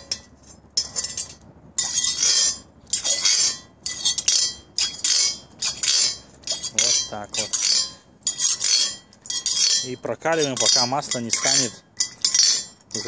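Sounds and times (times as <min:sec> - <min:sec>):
metal skimmer scraping a cast-iron pot: 0:00.0 - 0:13.0.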